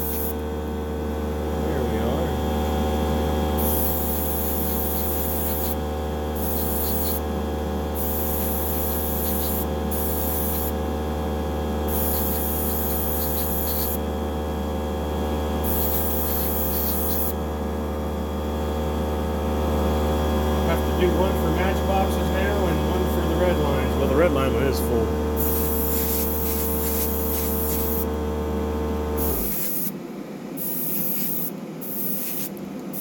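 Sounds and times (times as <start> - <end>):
airbrush spraying hiss: 0.0 - 0.4, 3.6 - 5.8, 6.4 - 7.2, 8.0 - 10.7, 11.9 - 14.0, 15.6 - 17.4, 25.4 - 28.1, 29.2 - 29.9, 30.6 - 33.0
steady low hum: 0.0 - 33.0.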